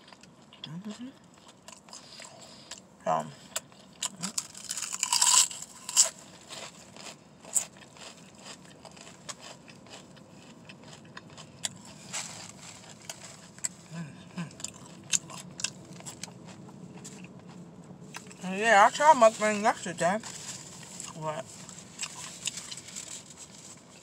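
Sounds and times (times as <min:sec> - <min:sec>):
open-mouthed chewing: 0:00.0 - 0:18.4, 0:20.2 - 0:23.4
crunchy bite into potato chip: 0:04.0 - 0:10.1.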